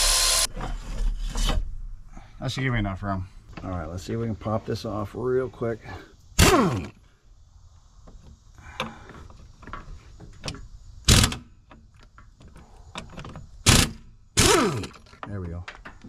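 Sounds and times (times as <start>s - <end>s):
impact wrench bursts: 0.0s - 0.5s, 6.4s - 7.0s, 11.0s - 11.6s, 13.6s - 15.1s.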